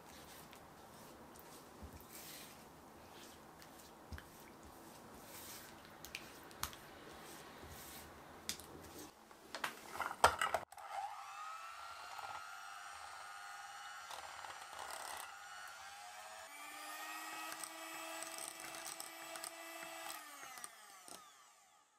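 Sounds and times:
electric hand mixer whining: 10.7 - 21.9.

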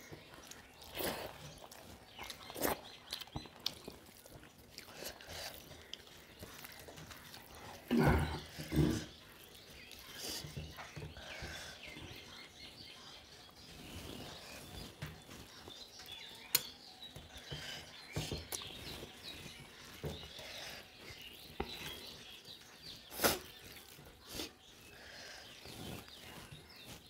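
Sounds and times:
faint chirping: 0.0 - 27.0
fingers mixing food: 0.0 - 27.0
mouth sounds: 7.8 - 9.4.

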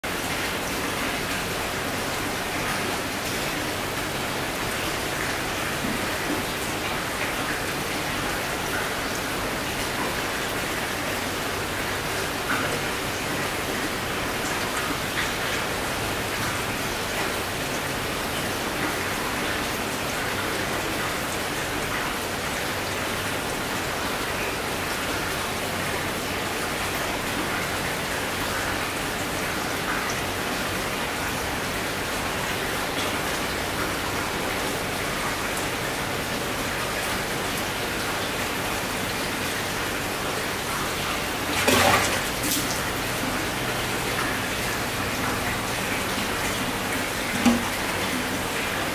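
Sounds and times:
fish splash at surface: 41.4 - 43.0, 47.0 - 48.4.

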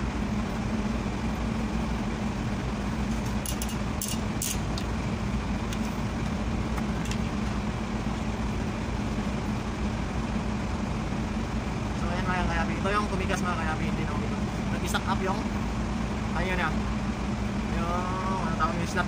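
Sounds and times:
steady low hum: 0.0 - 19.0
pry bar clicking on metal: 3.5 - 4.9.

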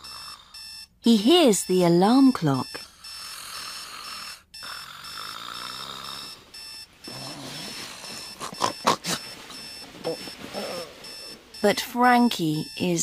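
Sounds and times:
snoring with snorts: 0.0 - 0.6, 2.8 - 11.6
digital alarm clock beeping: 0.0 - 13.0.

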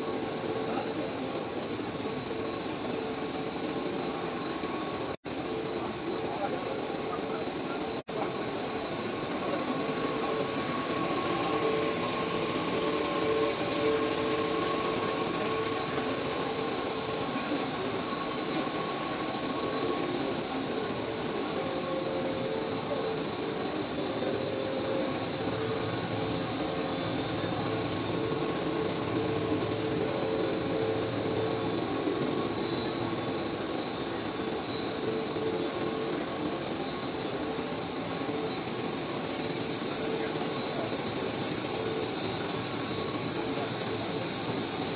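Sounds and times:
high-pitched machine whines: 0.0 - 44.9.

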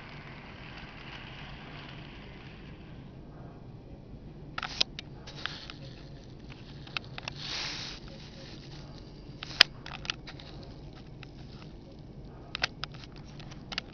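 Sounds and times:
model train wheels clicking on track: 0.0 - 3.2, 4.6 - 13.9
rush of passing train car: 0.0 - 3.6.

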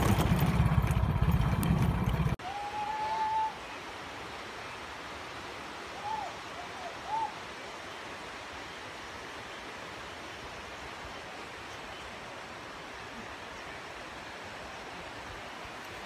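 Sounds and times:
rocky stream rushing: 0.0 - 16.0
hoot-like calls: 5.9 - 7.5.

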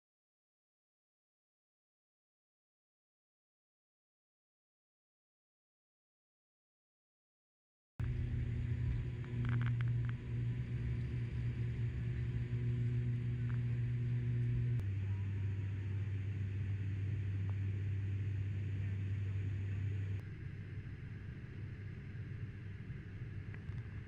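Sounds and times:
propeller plane engines droning: 8.0 - 24.0.

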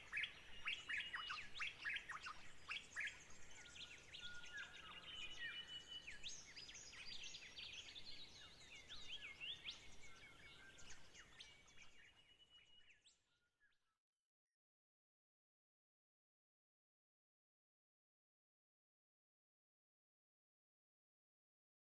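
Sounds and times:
birds chirping and whistling: 0.0 - 13.2.

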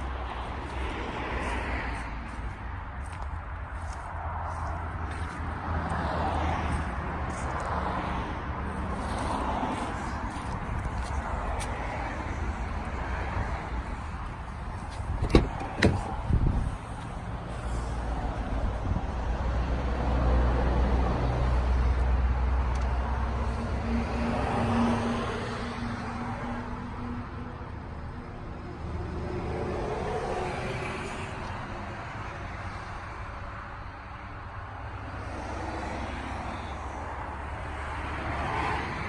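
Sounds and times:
car engine rumble: 0.0 - 38.3
sharp clunks: 15.2 - 16.1.

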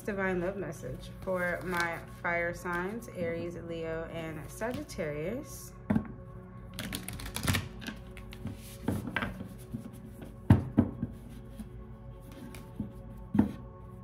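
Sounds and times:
background music with held tones: 0.0 - 14.0
cards being shuffled: 1.2 - 2.2, 6.8 - 9.8.

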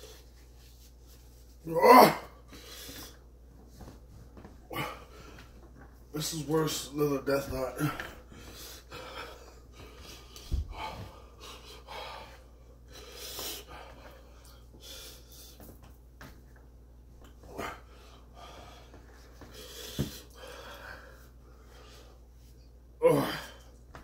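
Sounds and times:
man breathing hard and wheezing: 7.8 - 15.7, 17.4 - 22.3.

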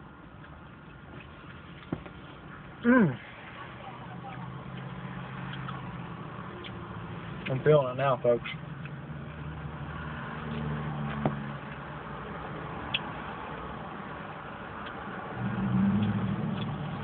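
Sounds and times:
vehicle engine humming: 0.0 - 17.0.

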